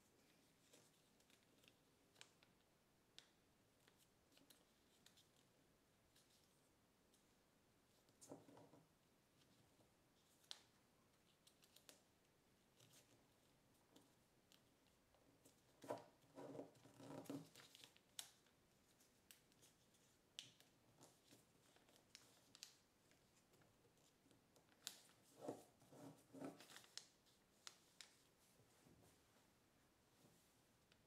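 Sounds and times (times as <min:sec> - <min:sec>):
light paper clicks: 0:00.6 - 0:05.5, 0:10.2 - 0:12.1, 0:13.9 - 0:25.6, 0:26.4 - 0:28.3
paper crackling as folded: 0:14.0 - 0:28.4.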